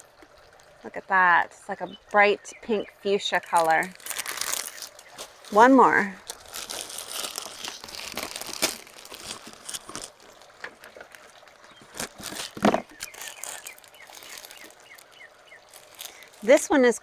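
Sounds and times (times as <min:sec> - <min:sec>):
plastic sleeve crinkling: 0:03.2 - 0:17.0.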